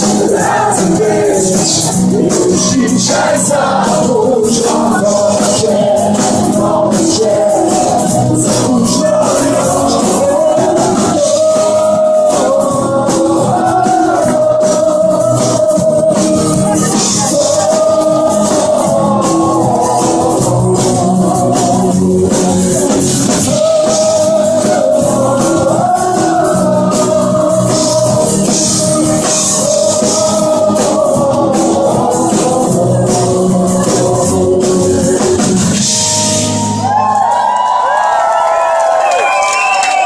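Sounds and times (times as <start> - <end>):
lead vocal singing: 0.0 - 36.4
live pop-rock band: 0.0 - 40.0
crowd cheering and whistling: 7.6 - 12.5, 35.8 - 40.0.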